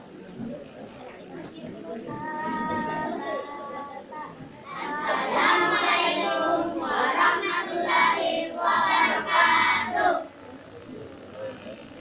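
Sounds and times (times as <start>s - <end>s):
children singing into a microphone: 2.1s - 10.3s.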